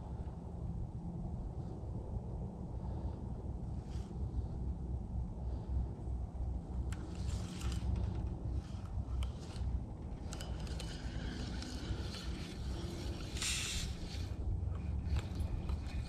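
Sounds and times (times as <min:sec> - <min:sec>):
wind rumble on microphone: 0:00.0 - 0:16.0
fishing reel clicks and scrapes: 0:06.9 - 0:16.0.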